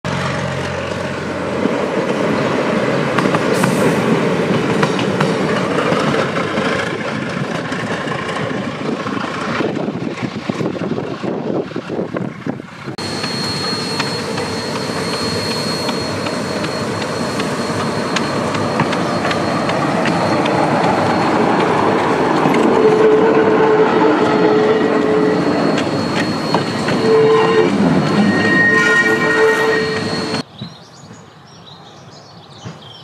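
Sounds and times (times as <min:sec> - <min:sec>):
railcar running noise: 0:00.1 - 0:33.0
thin high whine: 0:13.0 - 0:30.4.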